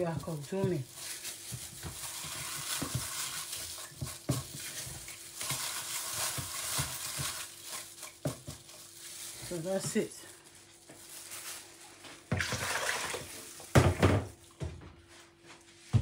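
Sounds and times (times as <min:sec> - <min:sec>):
apples rubbed in water: 0:00.0 - 0:13.7
water splashing and dripping: 0:12.4 - 0:13.6.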